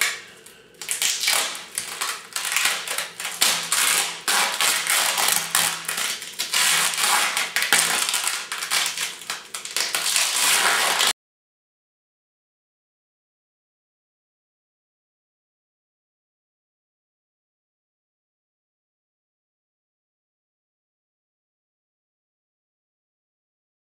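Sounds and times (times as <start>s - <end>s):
plastic bags crinkling: 0.0s - 11.1s.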